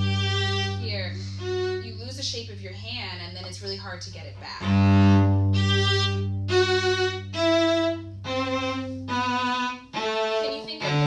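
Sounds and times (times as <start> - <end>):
violin playing held notes: 0.0 - 2.1, 4.6 - 11.0.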